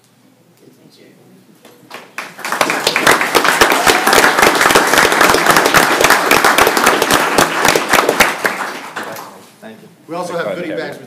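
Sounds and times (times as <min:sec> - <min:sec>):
crowd applauding: 0:01.9 - 0:09.4.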